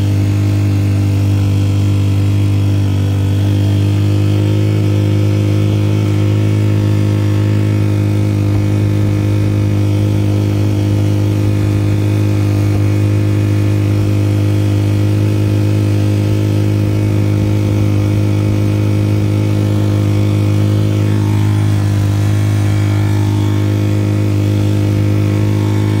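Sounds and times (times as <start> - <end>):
outboard motor running: 0.0 - 26.0.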